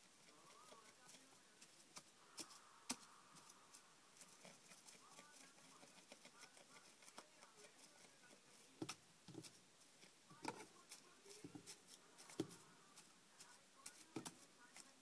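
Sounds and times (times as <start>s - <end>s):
rustling in hay bedding: 10.8s - 15.0s.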